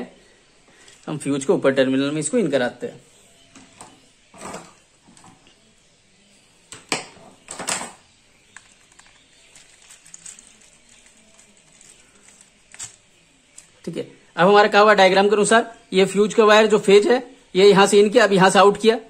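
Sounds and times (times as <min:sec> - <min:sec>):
small clicks and scrapes of wire: 0:08.5 - 0:13.7.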